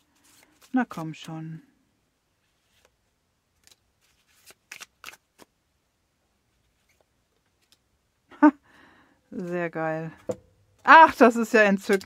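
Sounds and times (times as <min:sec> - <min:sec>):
cards flicking and sliding: 0:03.6 - 0:05.6, 0:11.8 - 0:12.0.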